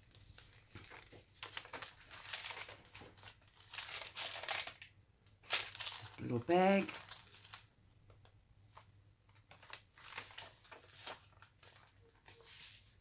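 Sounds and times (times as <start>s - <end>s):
page turning: 0.0s - 4.8s, 8.7s - 12.9s
paper bag handled: 0.0s - 4.8s, 5.4s - 7.6s, 9.5s - 12.9s
paper pages rustling: 0.0s - 4.8s, 5.5s - 7.6s, 8.7s - 13.0s.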